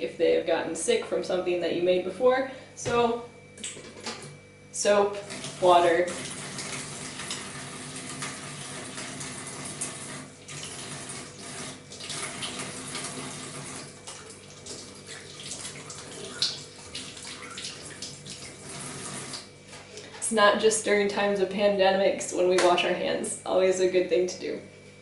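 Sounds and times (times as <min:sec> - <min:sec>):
tap water running into sink: 0:05.2 - 0:19.5.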